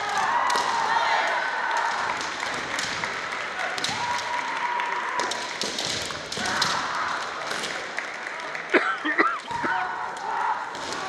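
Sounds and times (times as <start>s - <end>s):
murmur of crowd: 0.0s - 11.0s
sharp taps and claps: 1.7s - 9.8s.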